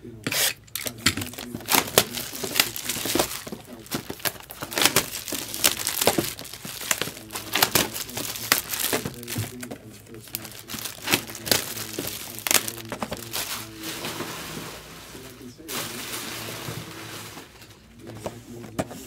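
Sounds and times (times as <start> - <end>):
plastic wrapping crinkling and tearing: 0.7 - 18.0.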